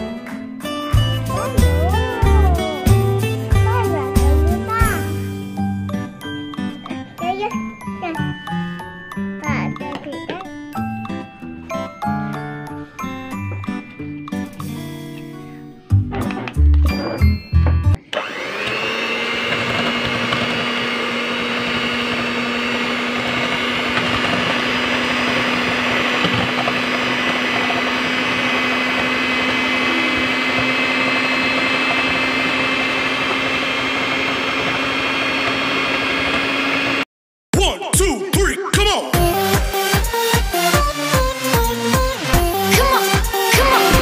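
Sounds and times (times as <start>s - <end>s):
music burst: 0.8s - 5.6s
electric hand mixer humming: 0.9s - 6.5s, 17.9s - 37.1s, 39.2s - 44.0s.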